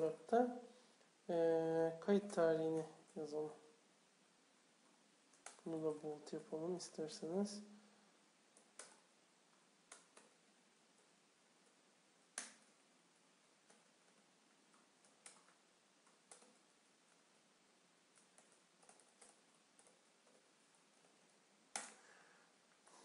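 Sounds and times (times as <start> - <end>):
keyboard keystrokes: 13.6 - 16.6, 18.1 - 21.1.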